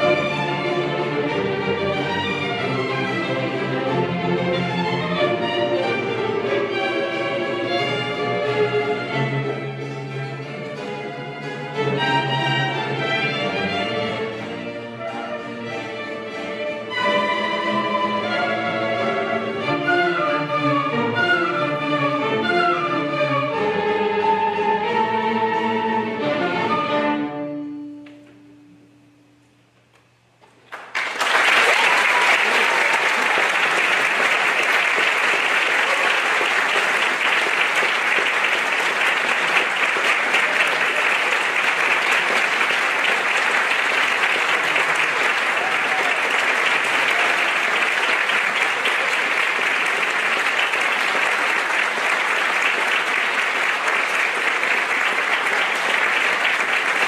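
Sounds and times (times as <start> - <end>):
audience applauding: 30.6 - 57.0.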